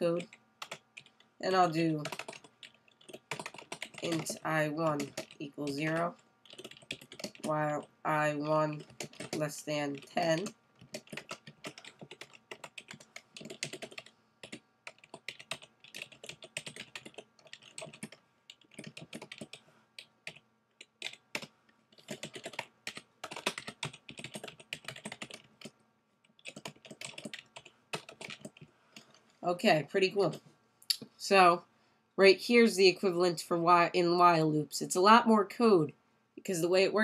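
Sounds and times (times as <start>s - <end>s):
typing on computer keyboard: 0.0s - 1.2s, 2.0s - 7.6s, 8.7s - 29.2s.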